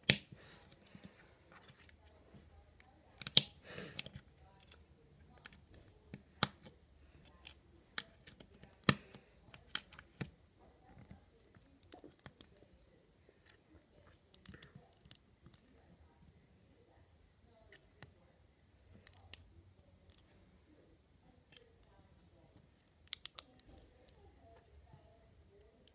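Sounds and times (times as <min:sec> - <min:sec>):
plastic bricks clicking: 0:03.2 - 0:04.2, 0:23.1 - 0:23.8.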